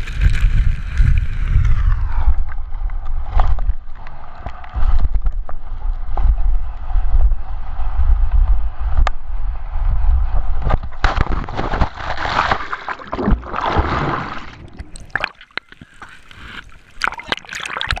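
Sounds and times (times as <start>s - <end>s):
wind buffeting microphone: 0.0s - 4.0s, 4.7s - 11.3s
underwater bubbling: 10.9s - 18.0s
sharp splashes: 11.0s - 15.7s, 16.3s - 18.0s
water rushing and splashing: 11.4s - 18.0s.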